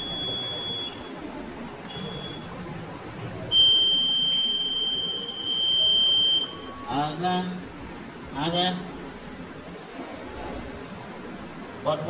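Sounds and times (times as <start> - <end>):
electronic warning beeps: 0.0 - 1.2, 1.9 - 2.6, 3.5 - 7.0.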